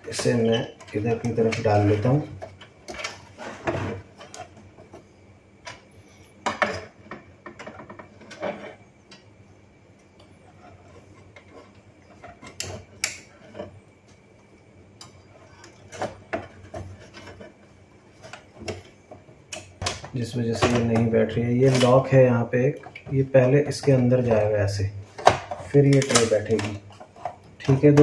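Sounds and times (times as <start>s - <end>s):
plastic parts clicking and knocking: 18.2s - 22.0s, 25.2s - 28.0s.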